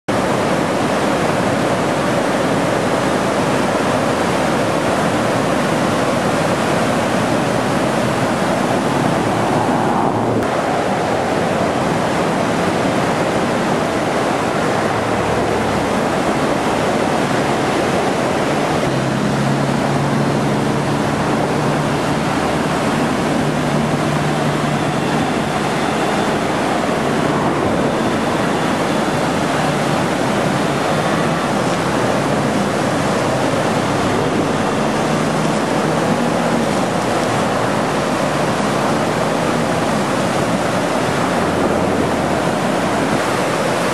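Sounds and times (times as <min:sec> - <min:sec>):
whitewater rapids rushing: 0:00.1 - 0:43.9.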